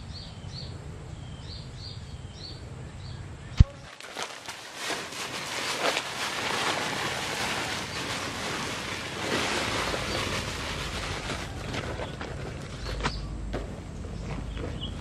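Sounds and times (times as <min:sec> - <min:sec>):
boots crackling on dry stems: 0:03.6 - 0:14.9
soil pouring from sack: 0:03.9 - 0:12.4.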